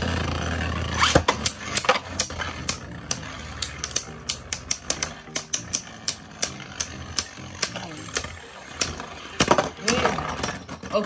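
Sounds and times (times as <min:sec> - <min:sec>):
spinning tops whirring: 0:00.0 - 0:11.0.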